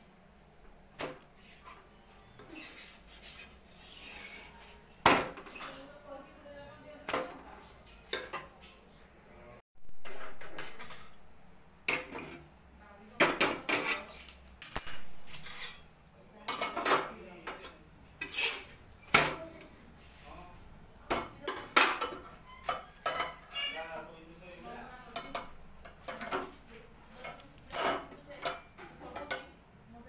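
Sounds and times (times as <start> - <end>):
metal utensils clinking on iron pan: 13.3 - 15.8, 21.1 - 23.8, 25.1 - 26.6, 27.2 - 29.6.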